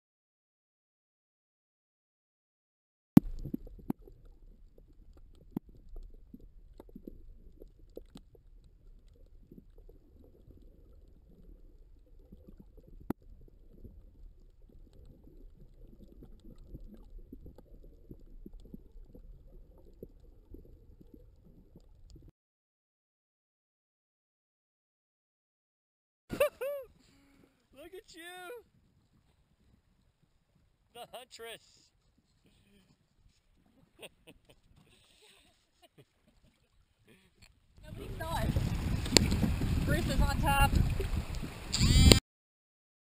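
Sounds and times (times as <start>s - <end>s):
muffled underwater rumble: 3.2s - 22.3s, 37.8s - 42.2s.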